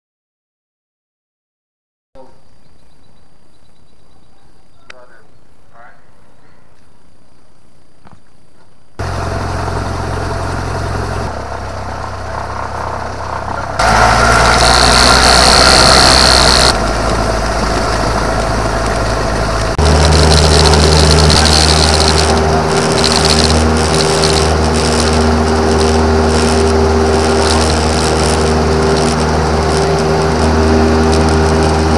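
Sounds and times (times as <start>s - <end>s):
aircraft engine and propeller: 9.0s - 31.9s.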